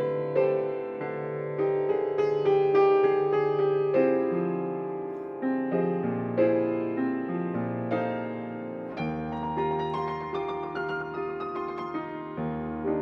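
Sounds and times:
solo piano playing: 0:00.0 - 0:13.0.

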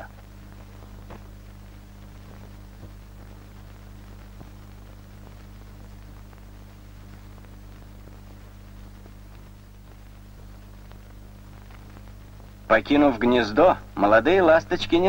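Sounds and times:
electrical hum and hiss: 0:00.0 - 0:15.0
faint clicks: 0:08.9 - 0:12.4.

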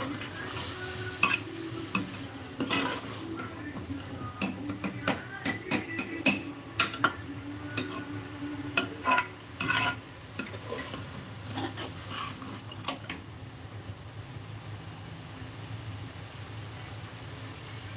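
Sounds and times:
metal ladle scraping a pot: 0:00.0 - 0:13.1
masala sizzling: 0:00.0 - 0:17.9.

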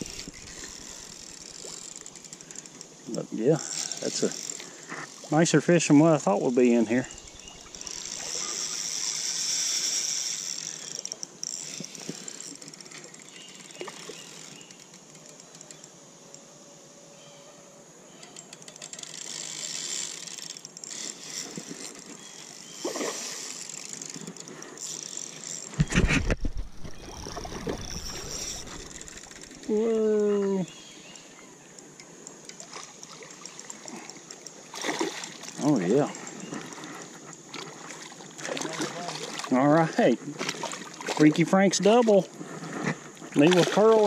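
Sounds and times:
fishing reel whirring: 0:00.0 - 0:16.4, 0:18.1 - 0:42.7
moving water hiss: 0:00.0 - 0:16.8, 0:19.3 - 0:25.9, 0:26.8 - 0:44.0
microphone handling thumps: 0:25.8 - 0:28.9.

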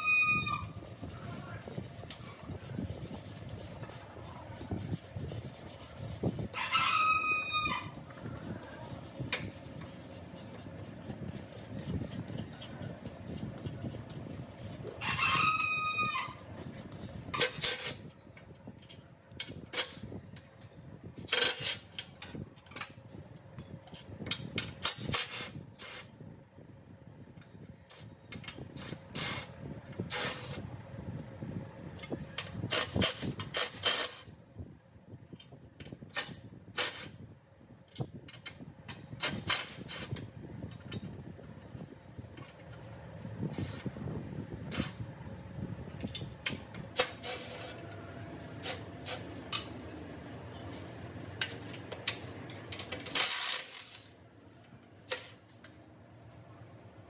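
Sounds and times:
rooster crowing: 0:06.6 - 0:08.0, 0:15.0 - 0:16.4.

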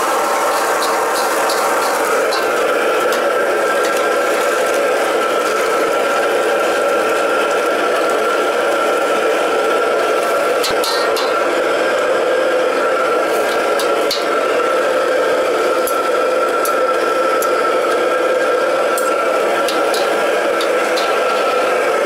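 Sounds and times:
wok range burner roar: 0:00.0 - 0:22.0.

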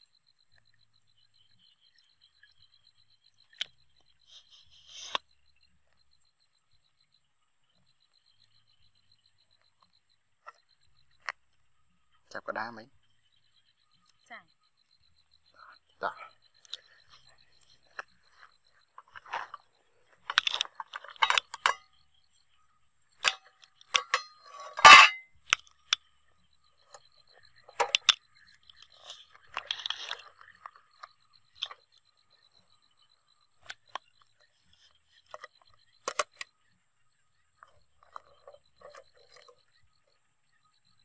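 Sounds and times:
metal tongs and lid clattering: 0:20.3 - 0:21.8, 0:23.2 - 0:25.2.

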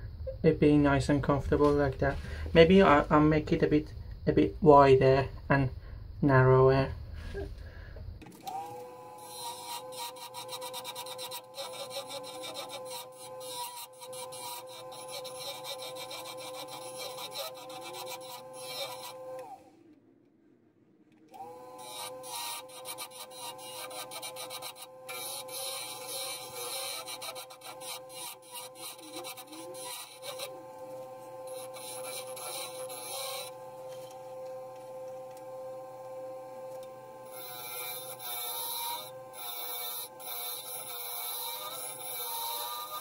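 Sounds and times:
chisel cutting wood scraping hiss: 0:07.2 - 0:19.7, 0:21.3 - 0:43.0
wood lathe motor whine: 0:08.2 - 0:19.9, 0:21.3 - 0:43.0.

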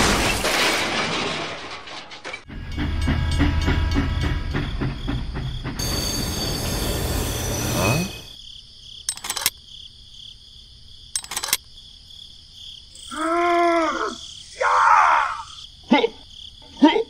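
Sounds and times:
crickets chirping: 0:02.7 - 0:17.0
steam train hiss: 0:04.6 - 0:08.4
clicks: 0:09.1 - 0:09.6, 0:11.2 - 0:11.6.

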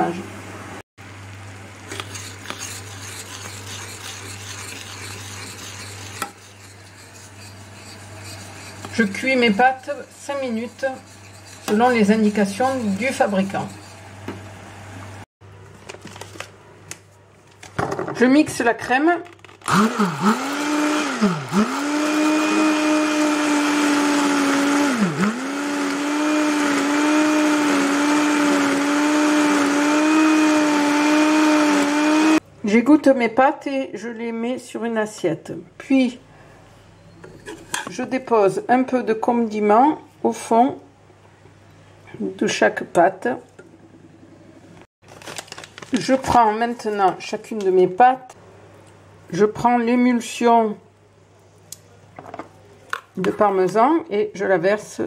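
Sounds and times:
metal spoon scraping saucepan: 0:01.9 - 0:14.1, 0:37.1 - 0:38.1
immersion blender running: 0:19.7 - 0:32.4.

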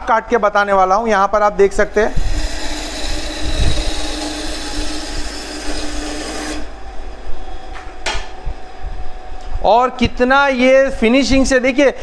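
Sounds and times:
band saw cutting wood: 0:02.0 - 0:06.8.

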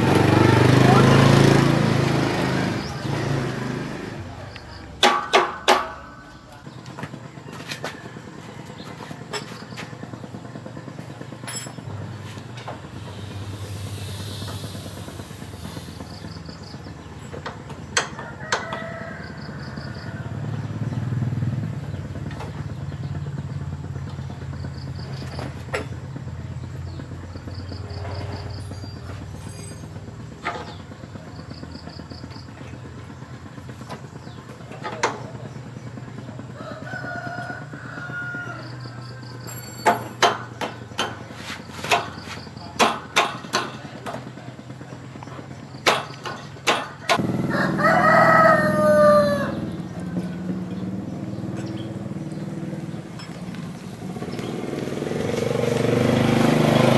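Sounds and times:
metal hand tools clinking: 0:11.4 - 0:11.9
rooster crowing: 0:18.1 - 0:20.5, 0:36.5 - 0:39.4, 0:47.0 - 0:50.5.

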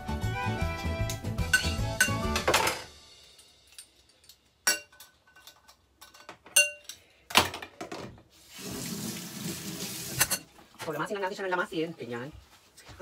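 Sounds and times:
glass bowl clinking: 0:01.4 - 0:02.8, 0:04.7 - 0:06.9.

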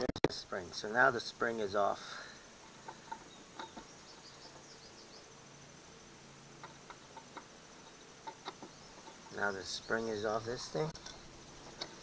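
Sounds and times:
high insect drone: 0:00.5 - 0:12.0
faint bird chirps: 0:02.0 - 0:06.1, 0:07.8 - 0:12.0.

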